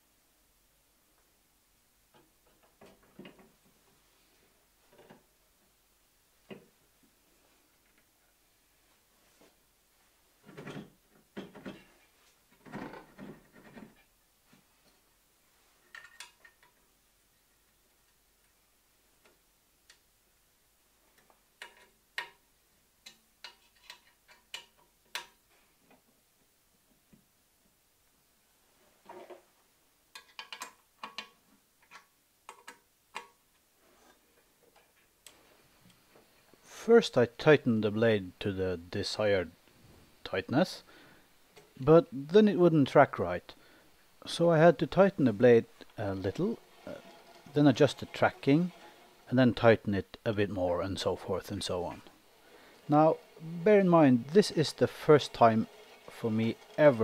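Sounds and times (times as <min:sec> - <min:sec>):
soft shuffle: 0:07.1 - 0:10.4
clunks: 0:45.7 - 0:49.3.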